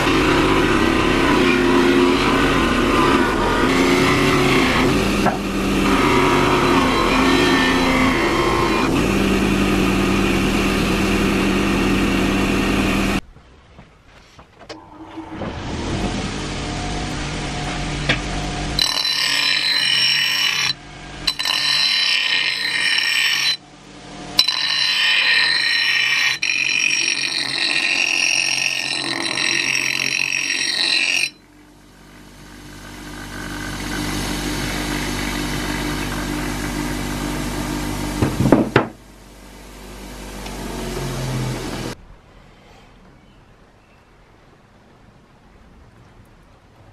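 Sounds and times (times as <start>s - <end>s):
bench grinder whirring: 0.0s - 13.2s, 15.9s - 42.0s
grinder wheel grinding steel: 0.0s - 13.2s, 14.9s - 38.9s.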